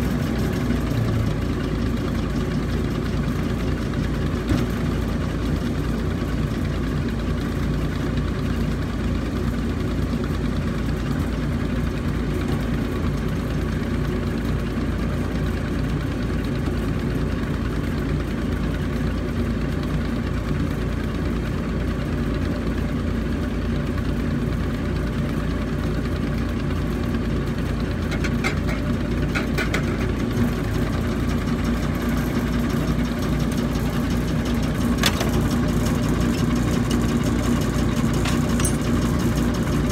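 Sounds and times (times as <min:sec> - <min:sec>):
drilling rig engine humming: 0:24.0 - 0:39.9.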